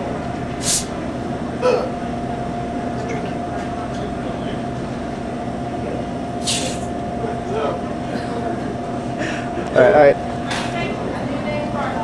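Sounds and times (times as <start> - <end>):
vending machine humming: 0.0 - 12.0
soda bottle opening hiss: 0.6 - 0.9, 6.4 - 6.8.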